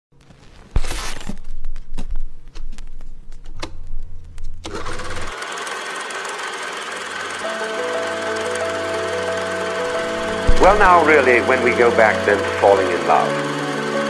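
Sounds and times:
film crackle: 0:00.1 - 0:04.6
film projector clattering: 0:04.6 - 0:14.0
music: 0:07.2 - 0:14.0
low hum: 0:08.4 - 0:12.6.

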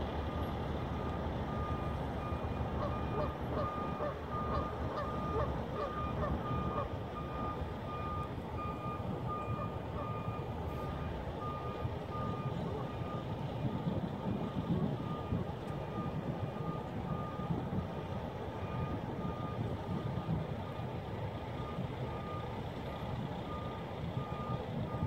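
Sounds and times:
truck backup alarm beeping: 0:00.0 - 0:25.0
truck running noise: 0:00.0 - 0:25.0.

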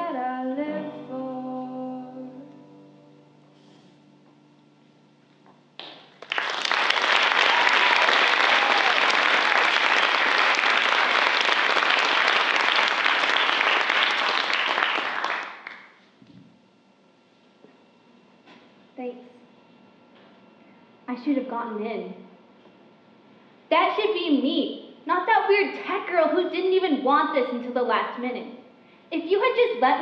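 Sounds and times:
audience applauding: 0:05.8 - 0:16.0.

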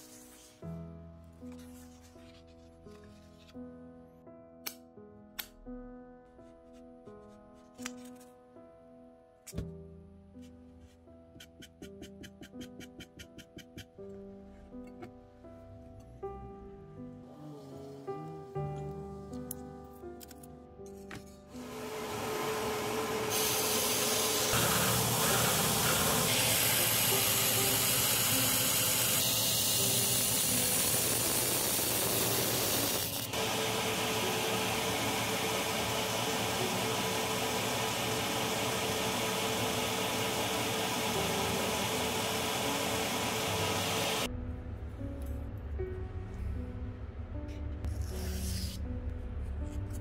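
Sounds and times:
motor hum: 0:21.6 - 0:44.3
blade grinding on belt: 0:23.3 - 0:34.0.

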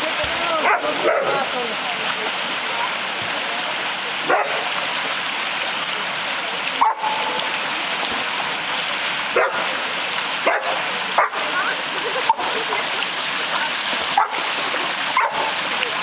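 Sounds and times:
dogs barking: 0:00.6 - 0:01.5, 0:04.2 - 0:04.7, 0:06.8 - 0:07.4, 0:09.3 - 0:09.7, 0:10.4 - 0:11.5, 0:14.1 - 0:14.5, 0:15.1 - 0:15.5
water pouring over a weir: 0:01.5 - 0:16.0.

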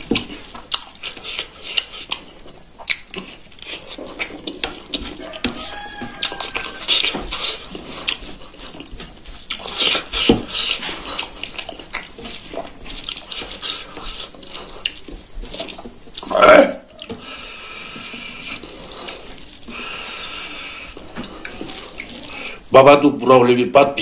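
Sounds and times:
chewing and lip-smacking: 0:00.0 - 0:16.3, 0:16.9 - 0:22.7.

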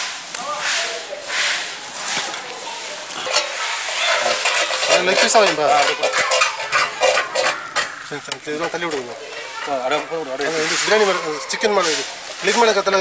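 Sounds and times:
metal ladle scraping pot: 0:03.1 - 0:13.0.

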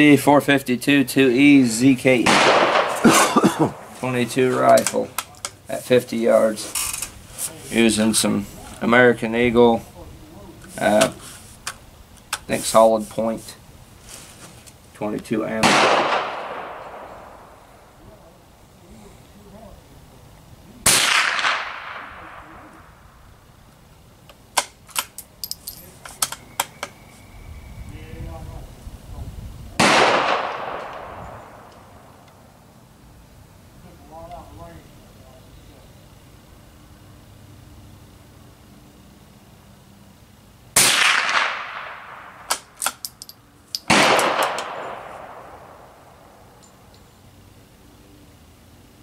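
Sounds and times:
rifle shot with echo: 0:02.2 - 0:04.0, 0:15.6 - 0:17.9, 0:20.8 - 0:23.0, 0:29.8 - 0:32.1, 0:40.8 - 0:42.8, 0:43.9 - 0:46.3
rifle bolt clicking: 0:42.5 - 0:44.7.

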